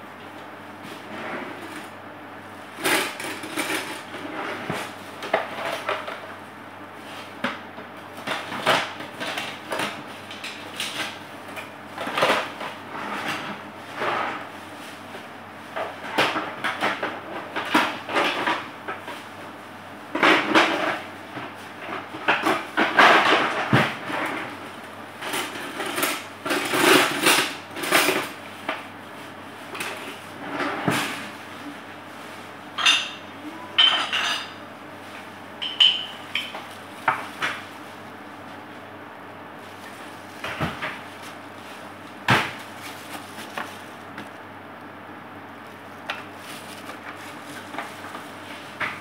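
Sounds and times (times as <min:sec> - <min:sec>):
dishes and utensils clattering: 0:32.8 - 0:34.6, 0:35.6 - 0:36.7.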